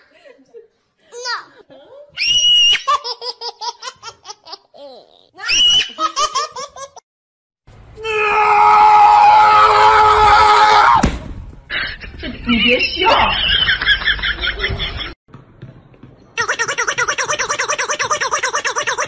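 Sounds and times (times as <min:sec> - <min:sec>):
high-pitched laughter: 0:16.4 - 0:19.0.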